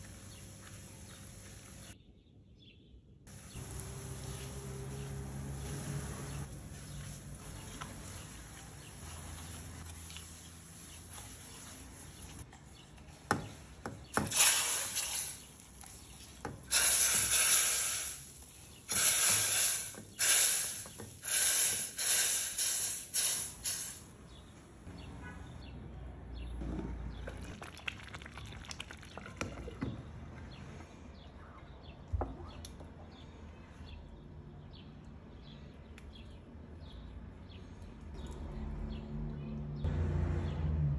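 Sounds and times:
stirring mixture: 6.5 - 14.3, 15.4 - 17.2
hissing and spattering syrup: 14.1 - 24.1
mixture bubbling: 27.2 - 30.0.

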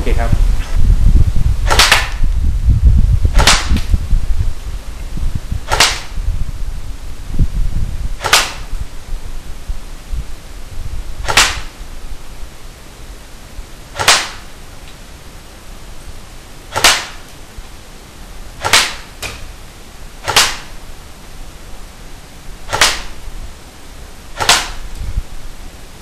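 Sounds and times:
airsoft gun shots: 1.6 - 2.3, 3.3 - 3.9, 5.6 - 6.2, 8.2 - 8.7, 11.2 - 11.8, 13.9 - 14.5, 16.7 - 17.3, 18.6 - 19.5, 20.2 - 20.8, 22.7 - 23.2, 24.4 - 25.0.

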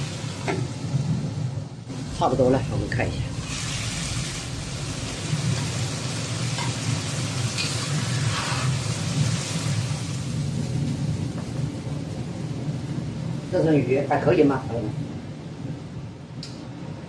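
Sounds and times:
sauce sizzling in a wok: 0.0 - 1.3, 3.2 - 11.6
low rumble: 0.0 - 17.0
metal spatula scraping: 7.5 - 8.8.

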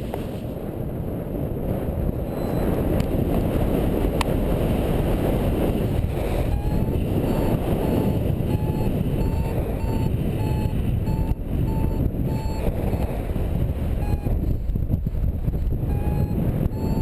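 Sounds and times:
wind buffeting microphone: 0.0 - 17.0
faint short beeps: 6.5 - 13.1, 14.0 - 14.7, 15.9 - 17.0.

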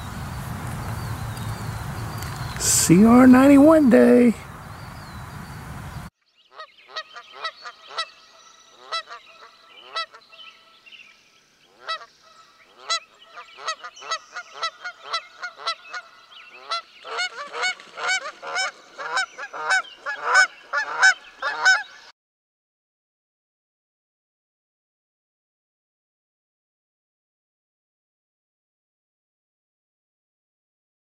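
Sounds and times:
geese honking: 8.8 - 10.7, 11.8 - 22.1.

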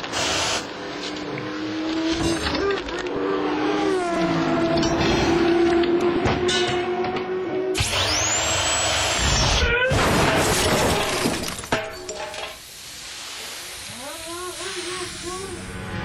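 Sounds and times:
impact wrench whine: 4.7 - 10.0
loud crash with breaking: 9.9 - 12.6.

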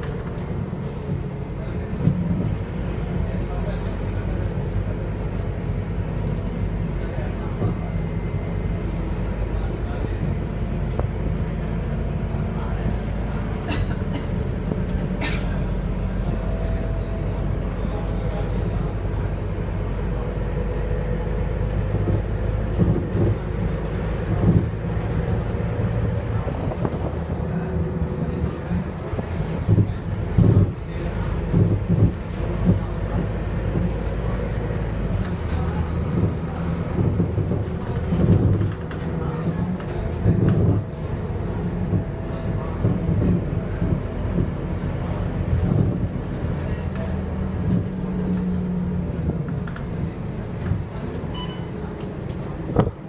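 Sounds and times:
bus diesel engine running: 0.0 - 53.0
road rumble: 0.0 - 53.0.

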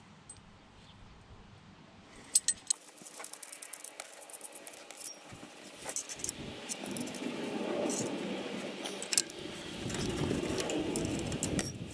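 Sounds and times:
metal rattling and scraping: 2.4 - 11.9.

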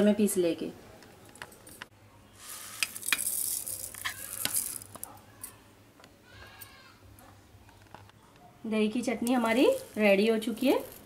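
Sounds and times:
soft hissing rustle: 2.2 - 5.1
spoon scraping steel jar: 2.4 - 5.0.

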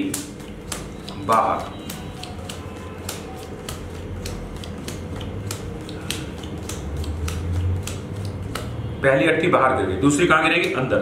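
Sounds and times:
playing cards snapping on table: 0.0 - 8.7.

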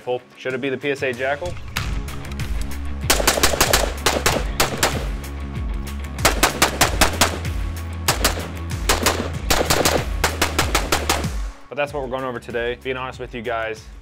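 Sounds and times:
background music: 0.0 - 14.0
rifle gunshots: 3.1 - 5.2, 6.2 - 11.6.

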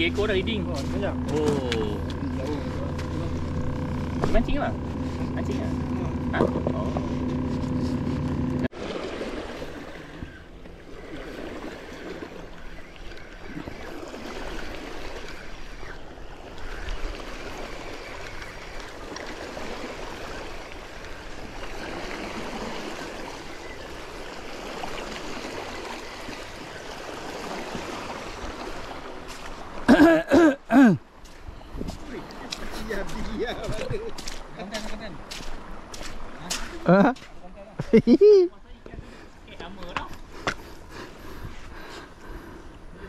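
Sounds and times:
humming motor-like tone: 0.0 - 8.7, 12.0 - 28.0
river water rushing: 13.5 - 31.0.

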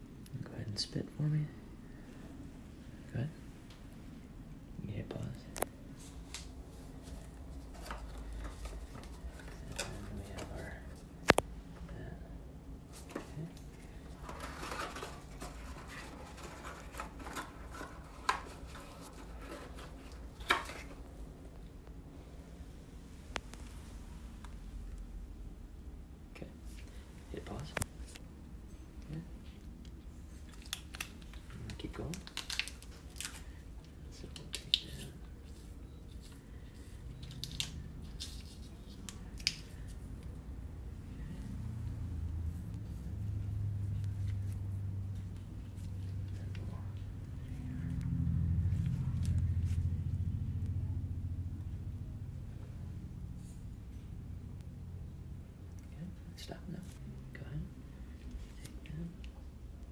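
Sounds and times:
packaging rustling and crinkling: 13.9 - 21.1, 30.5 - 33.6
plastic blister packet crinkling: 30.5 - 33.6, 37.1 - 39.8.

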